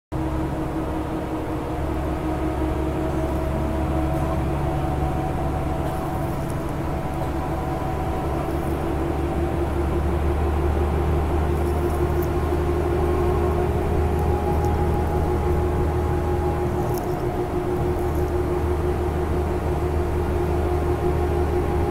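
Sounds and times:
engine and tyre rumble: 0.1s - 21.9s
humming tones: 0.2s - 21.9s.

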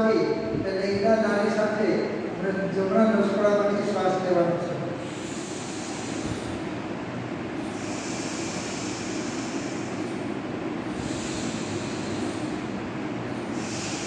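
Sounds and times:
steady low hum: 0.0s - 14.0s
breathing through nostril: 5.0s - 6.7s, 7.6s - 12.7s, 13.3s - 14.0s.

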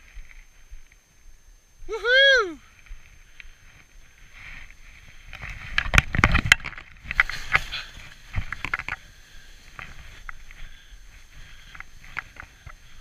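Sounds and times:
skis scraping through snow: 3.6s - 13.0s.

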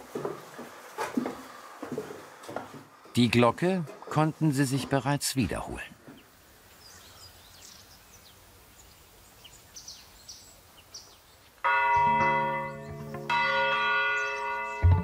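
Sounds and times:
church bell striking: 11.6s - 15.0s.

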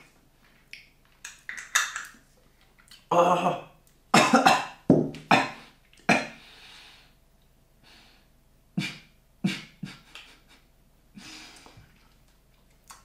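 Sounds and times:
man coughing: 4.2s - 6.4s
man breathing: 6.4s - 7.2s, 7.8s - 10.6s, 11.2s - 12.0s.

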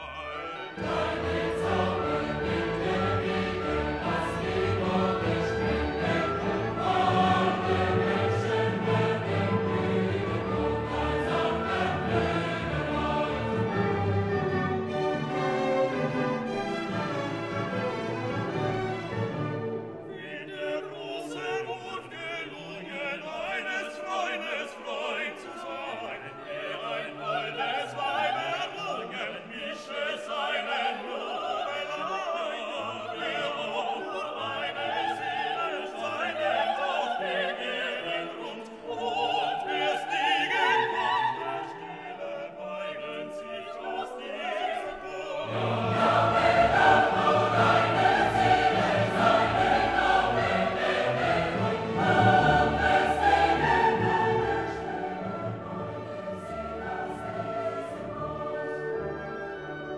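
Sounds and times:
orchestra playing: 0.0s - 29.1s, 43.4s - 59.9s
operatic singing: 0.0s - 59.9s.

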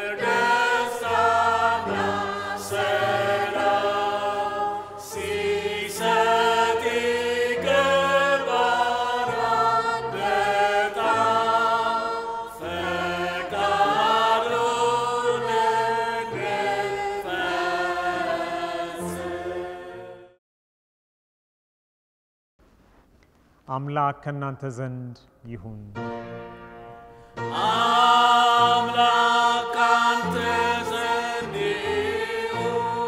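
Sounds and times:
choir singing a chant: 0.0s - 20.4s, 27.4s - 33.0s.

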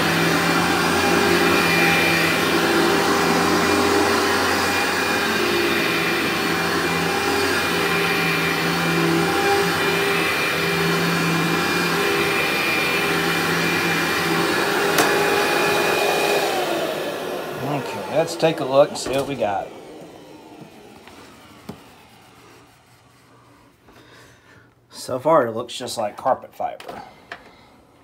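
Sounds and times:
upright vacuum cleaner on carpet: 0.0s - 24.1s
vacuum cleaner click: 11.8s - 22.0s.

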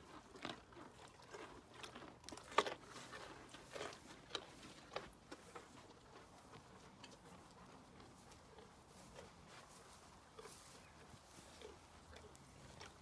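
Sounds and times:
ponies crunching carrots: 0.0s - 13.0s.

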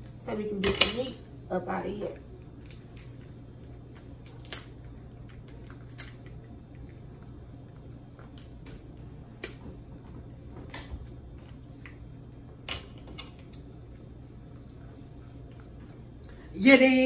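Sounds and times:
crab shells cracking: 4.2s - 6.3s.

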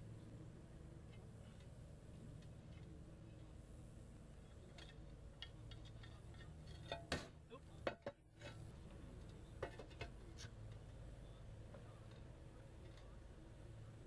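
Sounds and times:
roof tiles clacking together: 9.6s - 11.0s.

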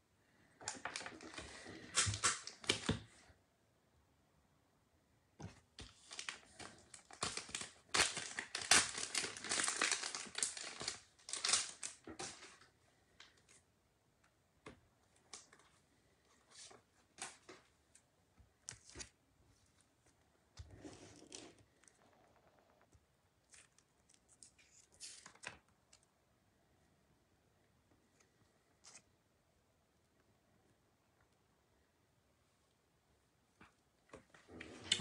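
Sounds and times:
packaging crinkling and rustling: 0.6s - 3.1s, 5.8s - 12.7s.

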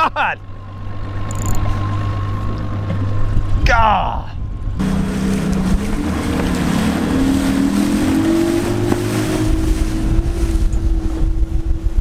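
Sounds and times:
outboard motor accelerating: 0.0s - 3.6s, 4.4s - 12.0s
wind on microphone: 1.1s - 12.0s
water rushing past hull: 4.8s - 12.0s.

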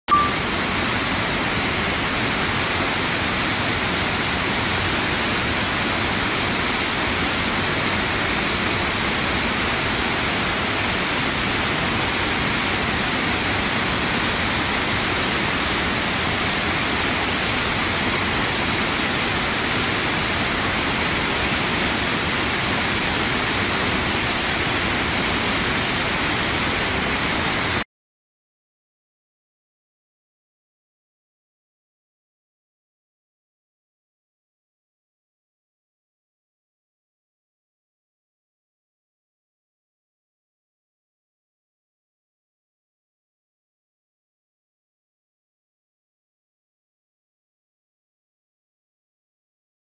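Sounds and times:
waterfall rushing: 0.1s - 27.8s.

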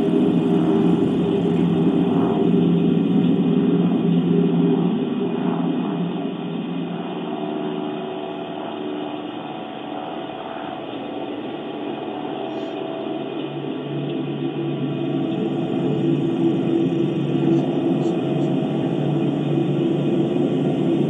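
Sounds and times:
faint hum: 0.0s - 21.0s
steady rumbling noise: 0.0s - 21.0s.

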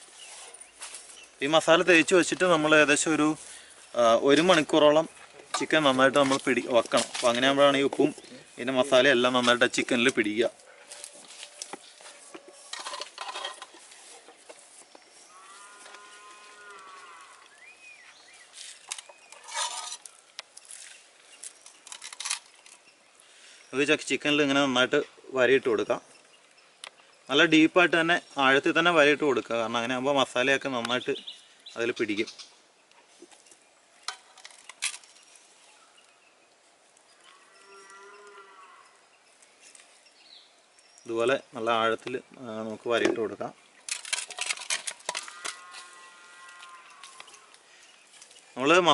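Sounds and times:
farm animal call: 15.2s - 17.7s, 37.2s - 39.0s, 45.1s - 47.6s
cow mooing: 15.3s - 17.5s, 37.4s - 38.9s, 45.2s - 47.5s.

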